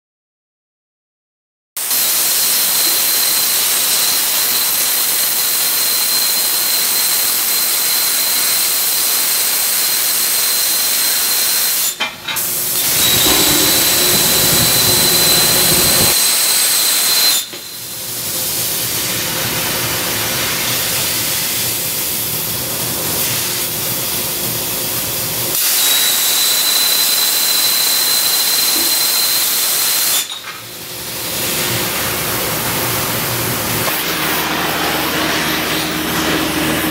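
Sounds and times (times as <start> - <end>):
plasma torch hissing: 12.8 - 16.2
thin high whine: 12.8 - 16.4.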